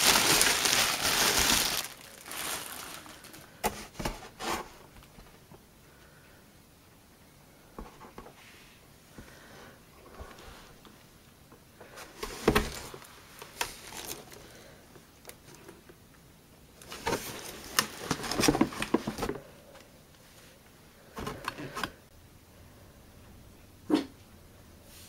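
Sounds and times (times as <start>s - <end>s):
blender jug handled in cardboard box: 16.8s - 19.4s.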